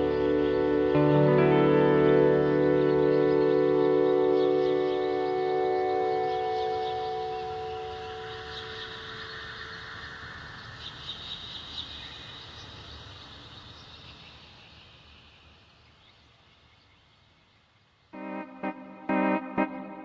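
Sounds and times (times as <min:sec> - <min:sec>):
electric keyboard chords: 0:00.0 - 0:08.4, 0:18.2 - 0:20.0.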